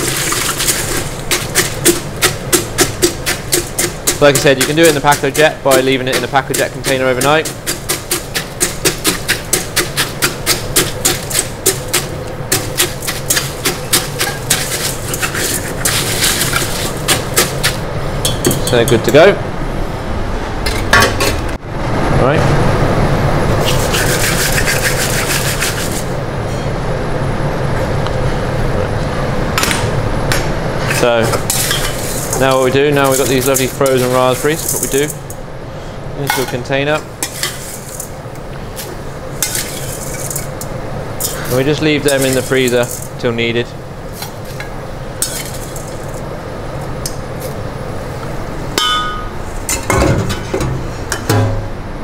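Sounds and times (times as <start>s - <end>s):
kitchen extraction drone: 0.0s - 52.0s
metal spoon clinking on steel: 18.2s - 19.0s
ringing metallic clang: 48.8s - 50.0s.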